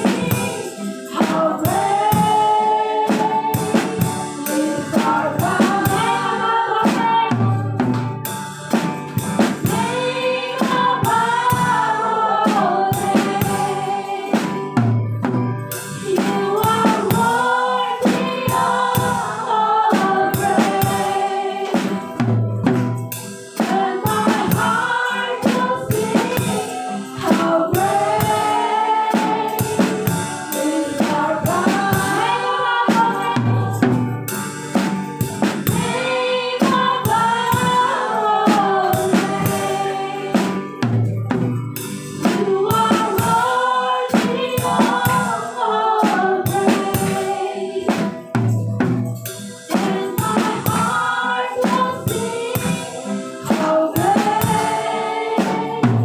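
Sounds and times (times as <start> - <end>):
group of voices singing: 0.0 - 8.2, 9.4 - 14.9, 15.9 - 22.4, 23.3 - 41.0, 42.1 - 48.5, 49.6 - 56.0
band playing: 0.0 - 56.0
drum kit beat: 0.0 - 56.0.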